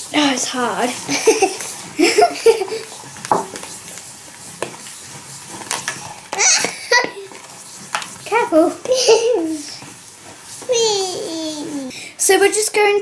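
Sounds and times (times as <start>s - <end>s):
spoons stirring slime in bowls: 0.0s - 12.9s
children's vocal sounds: 6.4s - 7.4s, 10.6s - 11.9s.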